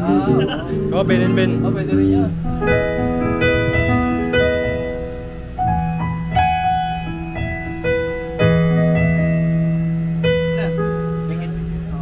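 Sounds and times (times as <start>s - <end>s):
electric bass guitar low notes: 0.0s - 12.0s
electronic keyboard piano chords: 0.0s - 12.0s.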